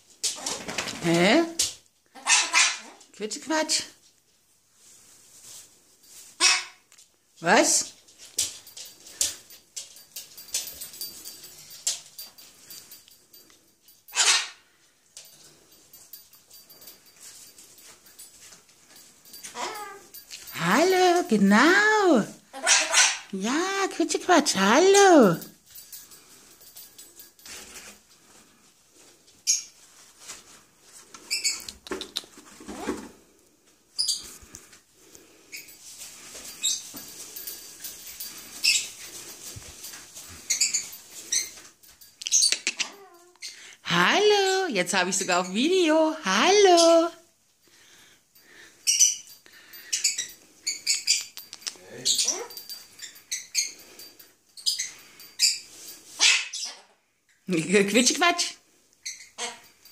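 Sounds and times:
cockatoo squeaking and chirping: 0:02.2 - 0:02.9, 0:14.1 - 0:14.6, 0:19.5 - 0:20.2, 0:22.6 - 0:23.3, 0:29.4 - 0:29.8, 0:31.2 - 0:32.2, 0:34.0 - 0:34.3, 0:38.6 - 0:39.0, 0:40.4 - 0:41.6, 0:42.2 - 0:43.6, 0:48.8 - 0:53.8, 0:54.6 - 0:57.0, 0:59.0 - 0:59.8
cockatoo chattering calls: 0:14.1 - 0:14.6.

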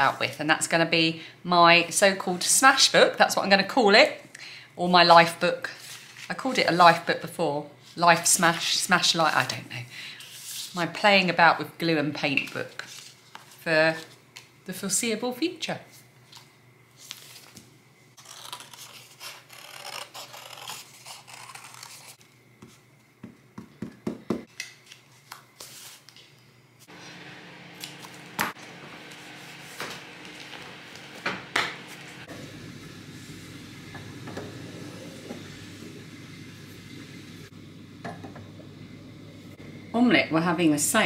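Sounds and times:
pages rustling: 0:05.8 - 0:06.6, 0:12.4 - 0:14.5, 0:16.2 - 0:22.8, 0:24.5 - 0:32.3
low steady hum: 0:26.4 - 0:41.0.

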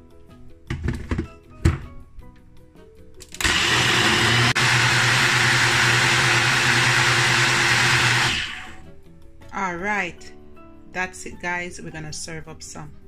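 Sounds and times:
blender crushing ice: 0:03.2 - 0:08.8.

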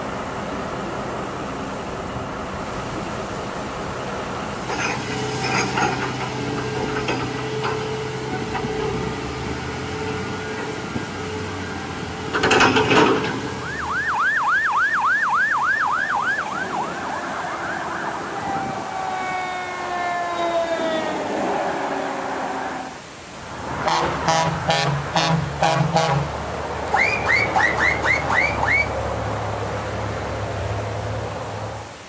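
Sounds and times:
heavy diesel machinery humming: 0:00.0 - 0:14.2
fire engine siren yelping: 0:13.3 - 0:23.1, 0:26.9 - 0:29.0.

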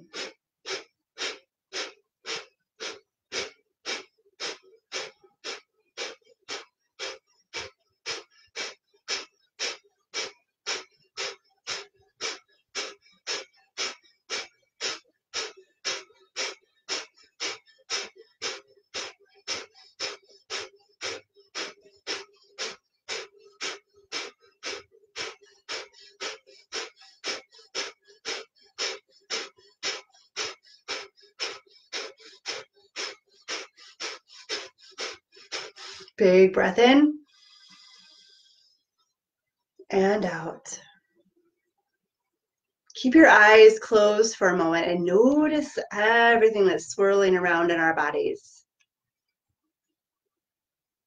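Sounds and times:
forceful nasal exhales: 0:00.0 - 0:36.2, 0:37.2 - 0:38.7
quiet inhales: 0:00.0 - 0:36.2, 0:37.2 - 0:38.9.

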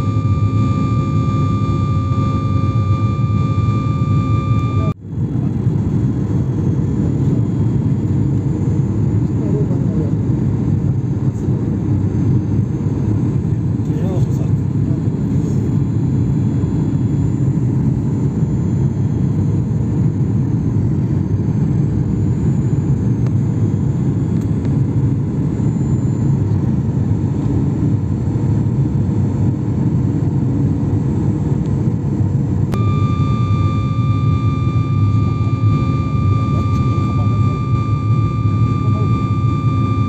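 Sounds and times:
high whine: 0:00.0 - 0:13.1, 0:32.6 - 0:40.0
jet engine and airflow rumble: 0:00.0 - 0:40.0.

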